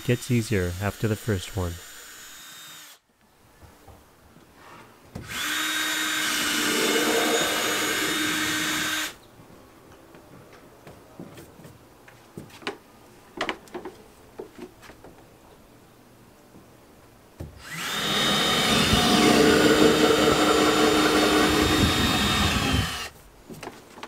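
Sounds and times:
power drill whining: 1.8s - 3.0s, 5.2s - 9.2s, 17.6s - 23.1s.

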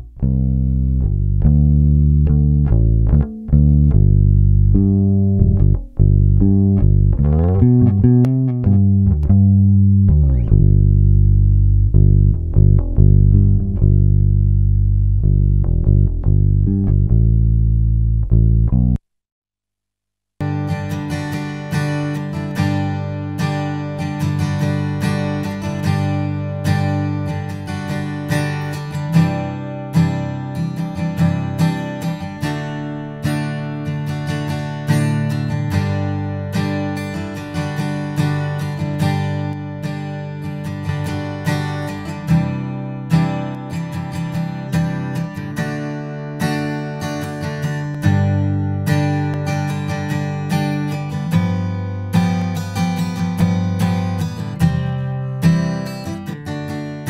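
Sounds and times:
electric bass guitar notes: 0.0s - 19.0s, 30.9s - 56.2s.

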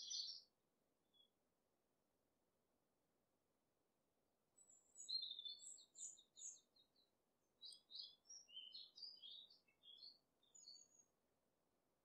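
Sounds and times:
small bird chirping: 0.0s - 0.5s, 4.6s - 11.1s.

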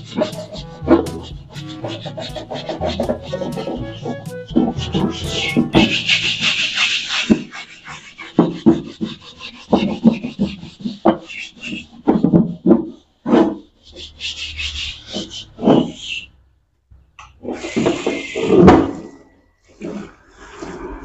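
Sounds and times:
steel wool scrubbing wok: 0.0s - 11.9s.

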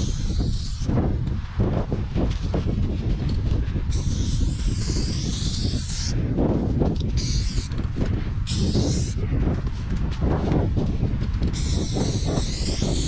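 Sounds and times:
spray paint can hissing: 0.0s - 0.9s, 3.9s - 6.2s, 6.9s - 7.8s, 8.4s - 9.2s, 11.5s - 13.0s.

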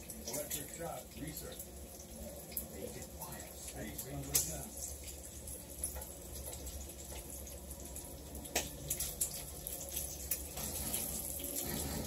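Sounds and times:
bacon sizzling in a pan: 0.0s - 12.0s.

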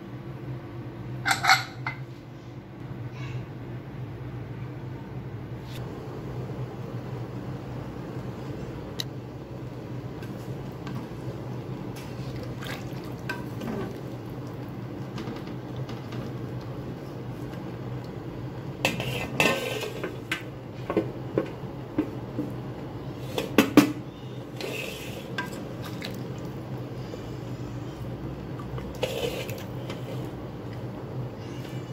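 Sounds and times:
spatula scraping pot: 18.8s - 20.2s, 24.5s - 26.0s, 28.9s - 30.3s.

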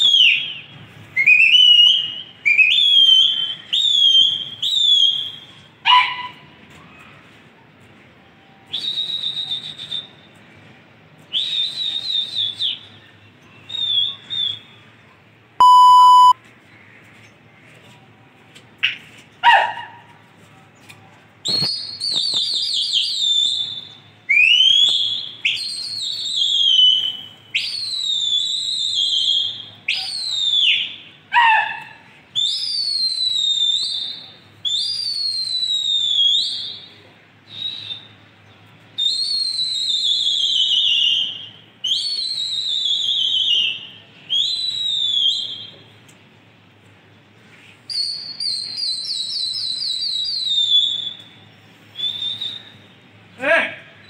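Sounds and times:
person whistling: 15.6s - 16.4s.

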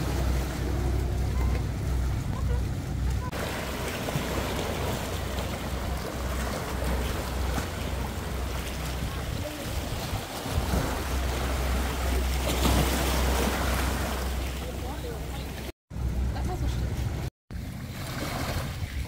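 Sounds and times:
waves washing over rocks: 0.0s - 1.3s, 3.3s - 15.4s.

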